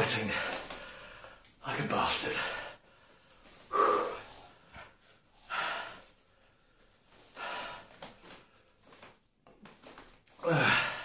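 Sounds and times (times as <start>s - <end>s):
man breathing hard: 0.2s - 1.6s, 2.3s - 8.8s.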